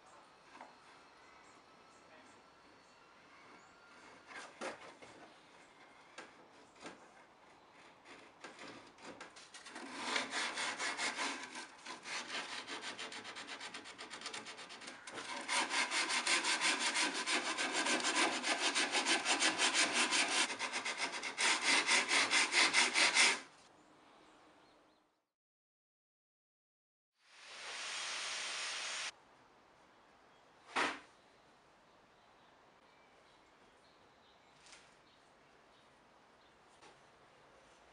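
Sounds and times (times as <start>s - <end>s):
sandpaper scraping on plywood: 7.8s - 23.5s.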